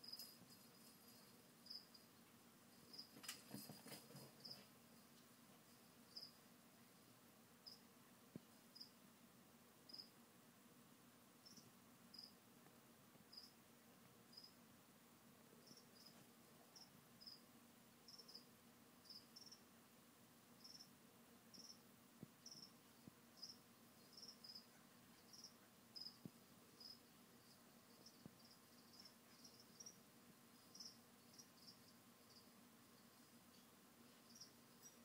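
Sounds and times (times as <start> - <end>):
cricket chirping: 0.0 - 3.7, 6.0 - 6.4, 7.6 - 7.8, 8.7 - 9.0, 9.9 - 10.2, 11.4 - 12.4, 13.3 - 13.6, 14.3 - 14.6, 15.6 - 17.5, 18.1 - 19.7, 20.6 - 35.0
faint low hum: 0.0 - 35.0.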